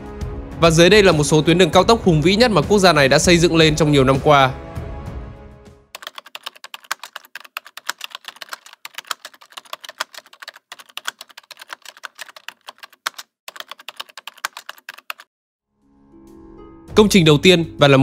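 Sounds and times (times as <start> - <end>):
keyboard typing clicks: 6.0 - 15.3.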